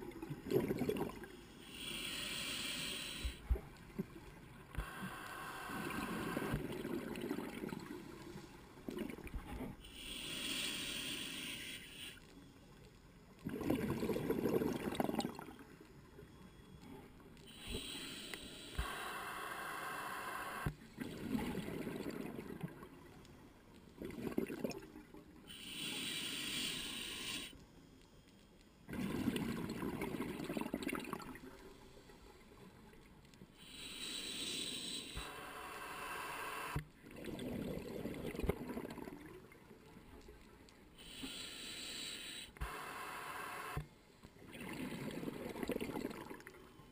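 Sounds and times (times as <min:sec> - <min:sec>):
exhaled air bubbling: 0:00.0 - 0:01.9, 0:05.7 - 0:08.0, 0:13.4 - 0:15.6, 0:21.0 - 0:23.0, 0:23.9 - 0:25.2, 0:28.9 - 0:31.6, 0:37.0 - 0:39.7, 0:44.4 - 0:46.9
regulator inhale hiss: 0:01.4 - 0:03.6, 0:04.8 - 0:06.6, 0:09.8 - 0:12.7, 0:17.4 - 0:20.7, 0:25.4 - 0:27.6, 0:33.6 - 0:36.9, 0:41.0 - 0:43.9.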